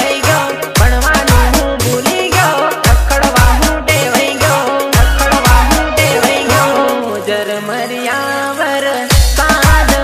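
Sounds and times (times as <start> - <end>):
dance remix music: 0.0 - 10.0
melody line: 4.8 - 8.0.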